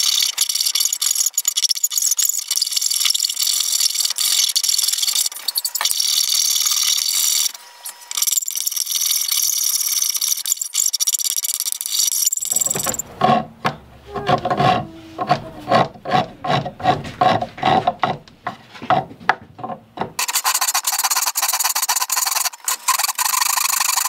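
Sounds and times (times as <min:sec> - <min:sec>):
file rasping on wood: 0:12.6 - 0:24.0.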